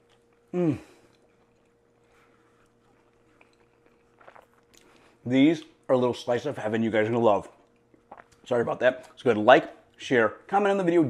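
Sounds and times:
faint chewing: 0.0 - 5.9, 7.4 - 9.2
man humming mmm: 0.5 - 1.1.

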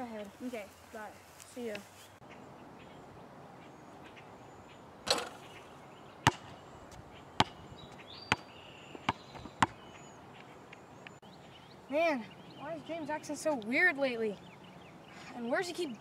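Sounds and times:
basketball hitting hoop: 6.2 - 6.5
ball bouncing on asphalt: 6.2 - 11.2.

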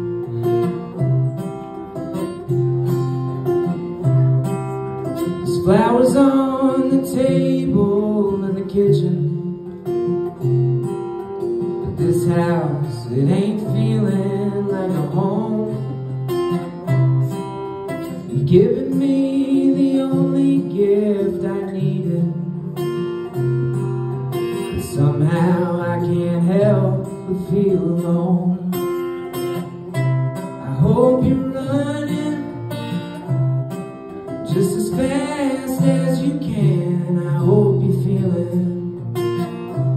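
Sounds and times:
acoustic guitar strumming: 0.0 - 39.9
man singing: 5.2 - 9.9, 11.8 - 17.5, 18.2 - 23.0, 24.3 - 29.0, 30.4 - 32.9, 34.3 - 39.1.

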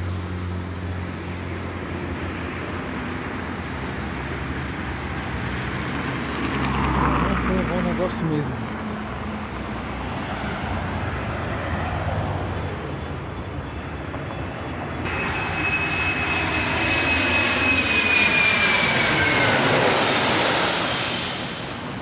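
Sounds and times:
jet roar: 0.0 - 22.0
jet fan whine: 7.8 - 22.0.

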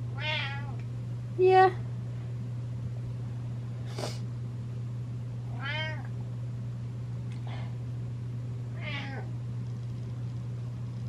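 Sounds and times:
steady low hum: 0.0 - 11.0
cat meowing: 0.2 - 0.8, 5.5 - 6.1, 8.8 - 9.3.

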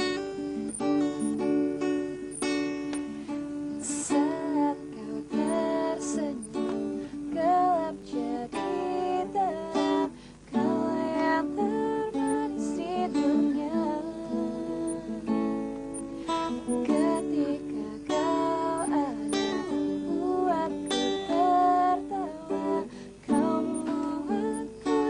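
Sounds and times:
strummed acoustic guitar: 0.0 - 25.0.

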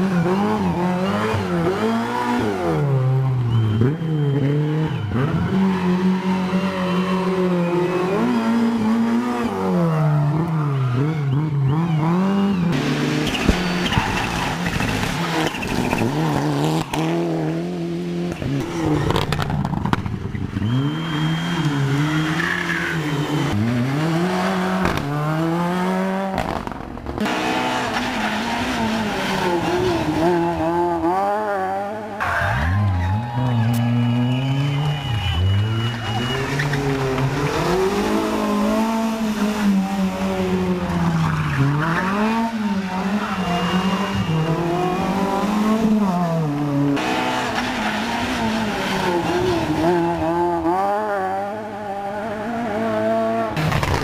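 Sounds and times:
rally car engines revving: 0.0 - 54.0.

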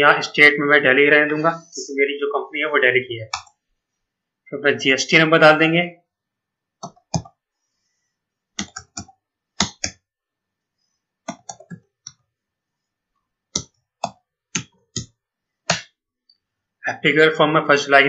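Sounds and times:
computer keyboard typing: 3.3 - 3.6, 6.8 - 7.4, 8.6 - 10.0, 11.3 - 12.2, 13.6 - 15.1.

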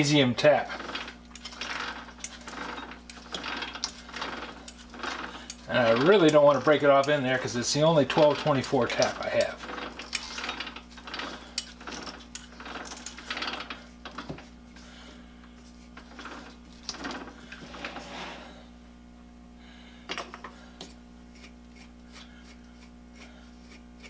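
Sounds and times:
lathe rubbing and clicking: 0.0 - 14.9, 15.5 - 18.5
faint steady hum: 0.0 - 24.0.

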